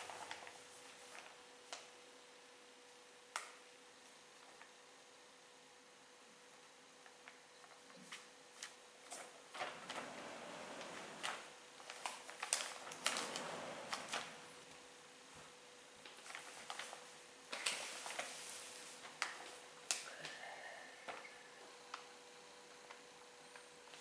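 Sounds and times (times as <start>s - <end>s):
plastic bag crinkling: 9.6s - 14.7s.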